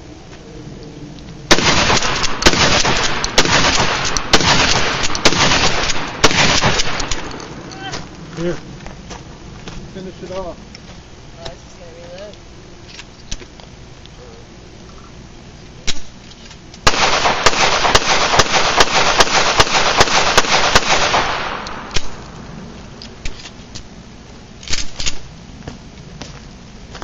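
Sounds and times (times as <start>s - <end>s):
pistol shots: 1.5s - 7.6s, 16.8s - 22.4s.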